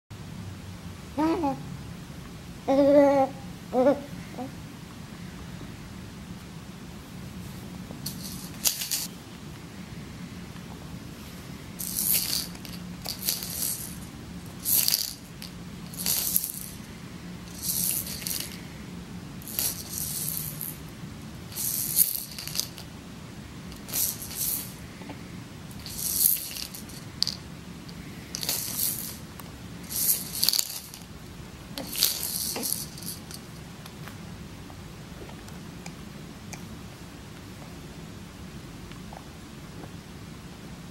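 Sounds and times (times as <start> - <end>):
bead rattle shaken: 8.0 - 9.1, 11.8 - 16.8, 17.5 - 18.6, 19.4 - 20.8, 21.5 - 22.9, 23.7 - 24.8, 25.7 - 27.5, 28.3 - 31.1, 31.8 - 33.6.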